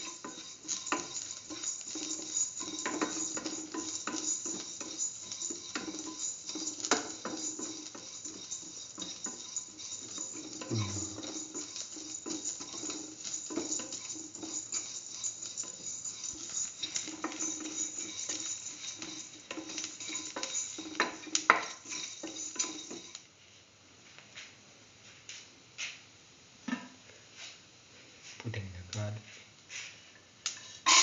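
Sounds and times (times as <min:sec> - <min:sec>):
food sizzling in oil: 0:00.0 - 0:23.2, 0:30.5 - 0:31.0
spatula scraping metal pan: 0:00.0 - 0:23.2, 0:30.7 - 0:31.0.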